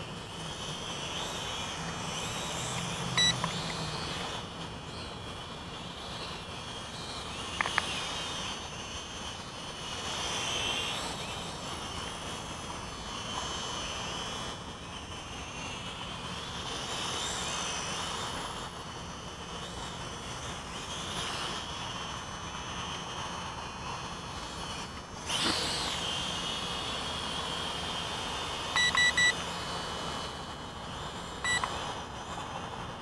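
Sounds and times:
toy drone motors whining: 0.0s - 32.0s
sharp clicks: 7.6s - 8.0s.

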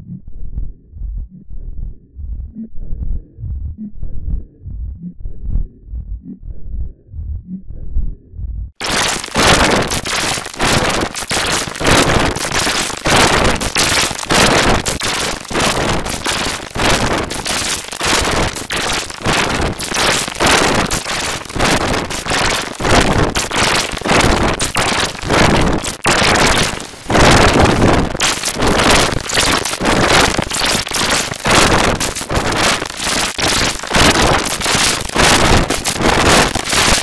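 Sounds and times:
harsh distorted crackling noise: 8.8s - 37.0s.

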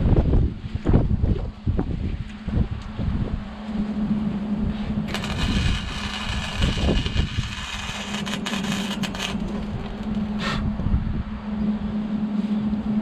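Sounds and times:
steady low hum: 0.0s - 13.0s
arc welder crackling and hissing: 5.1s - 10.6s.

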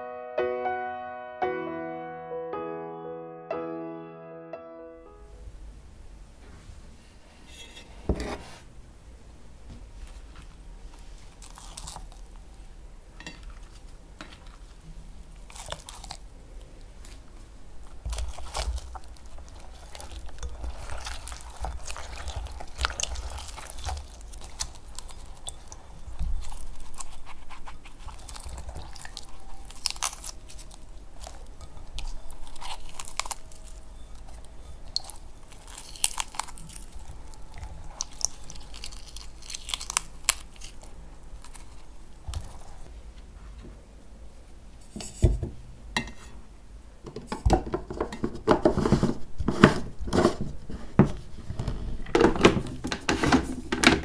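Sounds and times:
strawberry tops tearing: 11.3s - 12.4s, 17.9s - 42.8s.

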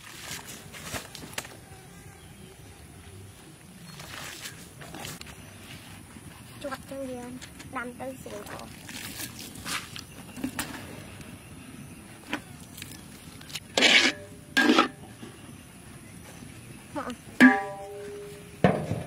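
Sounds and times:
metal spatula scraping a wok: 13.7s - 15.1s
ringing metal clang: 17.4s - 19.0s.

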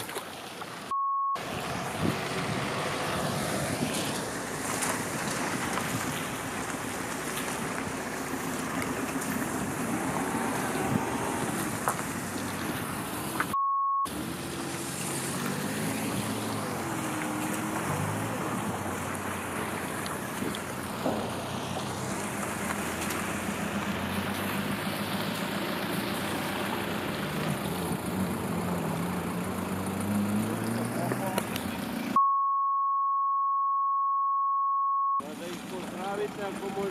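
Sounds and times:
car driving through puddles: 0.0s - 32.2s, 35.2s - 36.9s
street noise: 0.0s - 32.2s, 35.2s - 36.9s
censor bleep: 0.9s - 1.4s, 13.6s - 14.1s, 32.2s - 35.2s.

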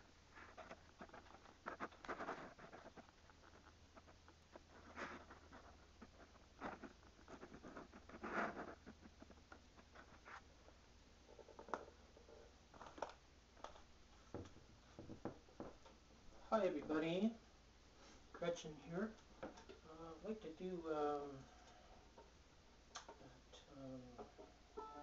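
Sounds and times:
rustling: 0.0s - 16.5s
low steady hum: 0.0s - 25.0s
light knocks of handling things: 12.8s - 16.0s.

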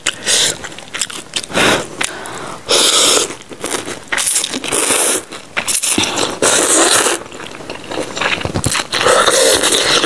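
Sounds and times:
noodle slurping: 0.0s - 10.0s.

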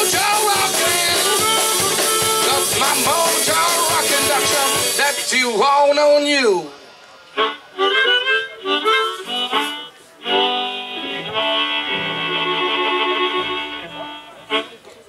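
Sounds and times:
held harmonica chord: 0.0s - 5.7s, 6.7s - 14.9s
stepping bass line: 0.0s - 6.2s
harmonica phrases: 0.0s - 15.0s.

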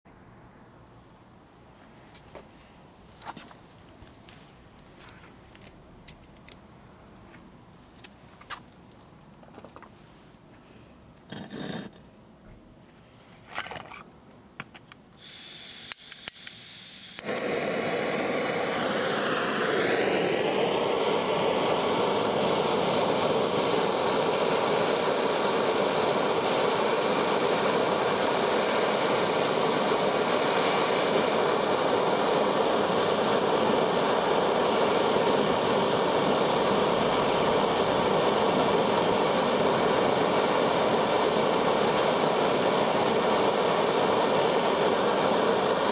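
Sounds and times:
blowtorch flame hissing: 11.3s - 12.0s, 15.2s - 45.9s
igniter clicks: 15.8s - 17.6s.

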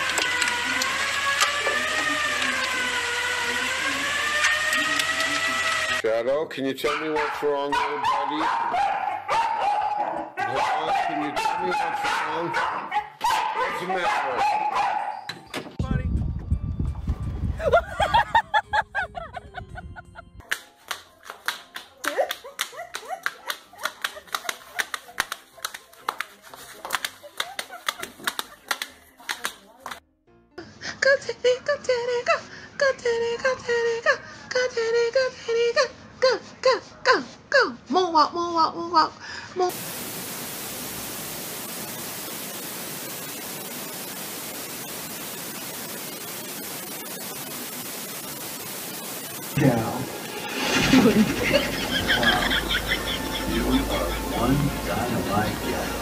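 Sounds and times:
static hiss: 39.7s - 56.0s.

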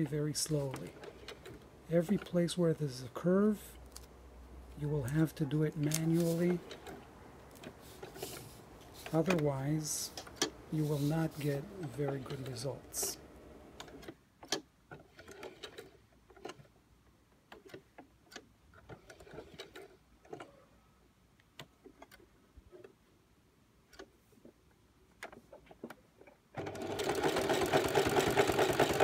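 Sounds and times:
sewing machine running fast: 26.6s - 29.0s.

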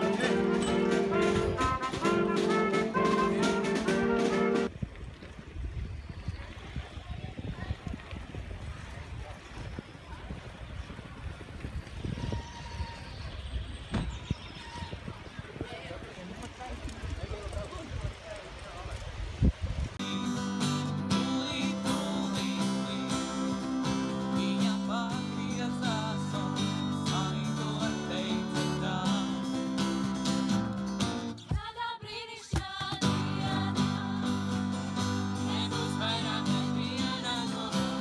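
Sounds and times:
song with guitar and singing: 0.0s - 4.7s, 20.0s - 38.0s.

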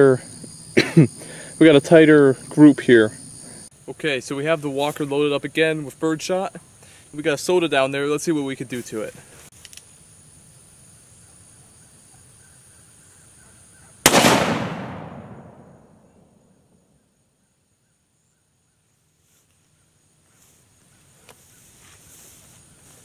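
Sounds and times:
gunshot with echo: 14.1s - 16.1s.

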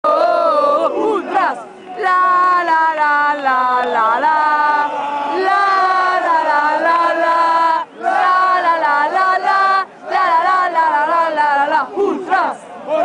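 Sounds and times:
football crowd chanting: 0.1s - 13.0s.

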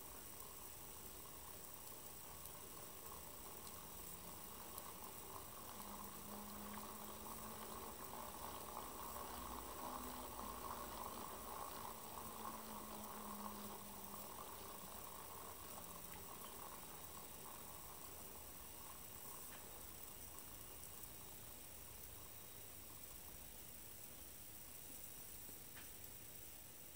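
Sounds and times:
faint whir of gears: 0.0s - 26.9s
low motor hum changing pitch: 3.6s - 18.4s.

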